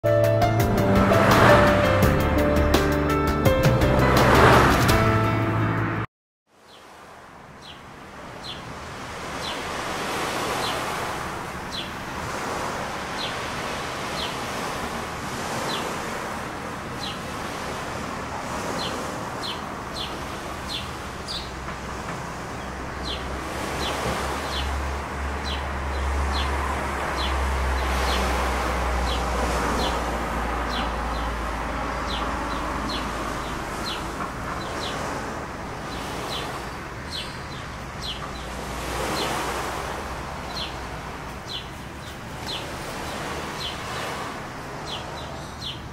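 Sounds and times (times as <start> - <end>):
steady noisy wash: 6.9 - 45.9
bird chirping: 30.7 - 35.0, 35.9 - 38.6, 40.5 - 40.8, 41.4 - 42.7, 44.9 - 45.8.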